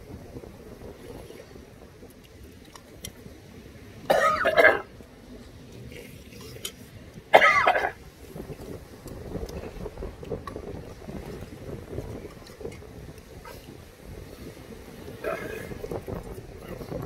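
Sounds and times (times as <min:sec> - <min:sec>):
person clearing throat: 0:04.1 - 0:04.9, 0:07.3 - 0:08.0, 0:15.2 - 0:15.8.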